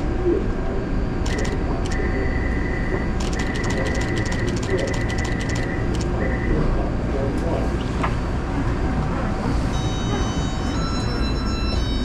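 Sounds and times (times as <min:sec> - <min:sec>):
train door-closing chime: 0:09.7 - 0:12.0.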